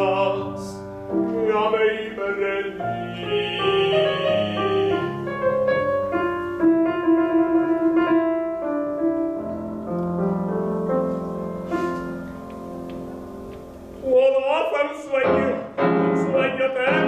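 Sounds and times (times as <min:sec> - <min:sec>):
slow piano melody: 0:00.0 - 0:17.0.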